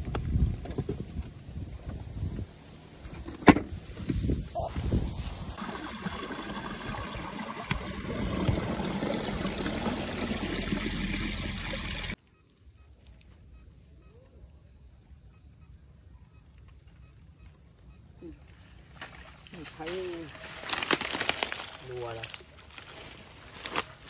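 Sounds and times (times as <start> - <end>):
plastic sack rustling: 18.9 - 24.0.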